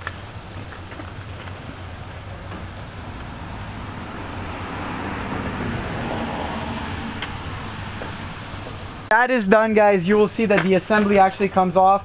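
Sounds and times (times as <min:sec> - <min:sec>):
low traffic rumble: 0:00.0 - 0:12.0
car passing: 0:01.6 - 0:09.2.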